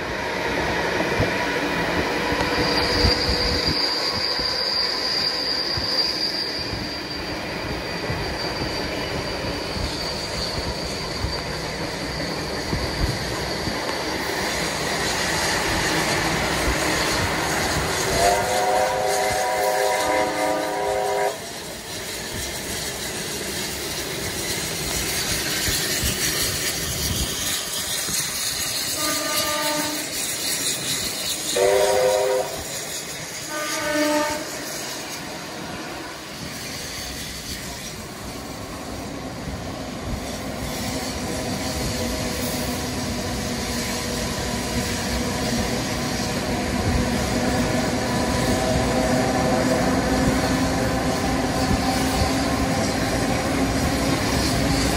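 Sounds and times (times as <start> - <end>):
train running: 0.0 - 54.9
train horn blasts: 18.1 - 21.5, 28.9 - 30.2, 31.5 - 32.7, 33.4 - 34.7.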